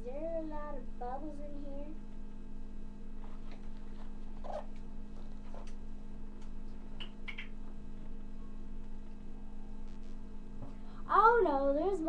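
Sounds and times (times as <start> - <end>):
steady low hum: 0.0 - 12.0
book pages rustling: 3.2 - 5.7.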